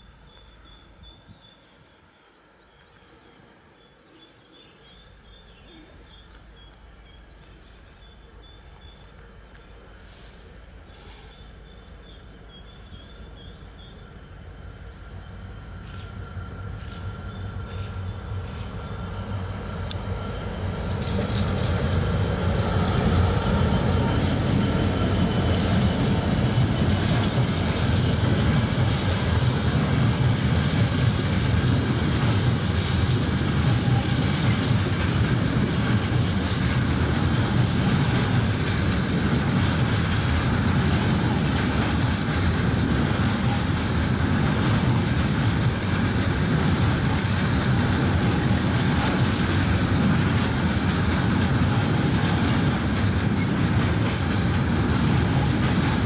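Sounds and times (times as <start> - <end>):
freight wagons rumbling on rails: 4.5 - 56.0
wheels clicking over rail joints: 20.8 - 56.0.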